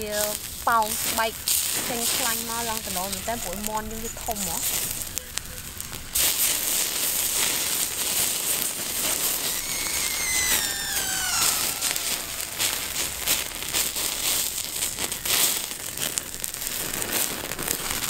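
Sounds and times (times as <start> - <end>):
fat sizzling on embers: 0.0 - 18.0
wood fire crackling and popping: 0.0 - 18.0
thin falling whistle: 9.3 - 14.9.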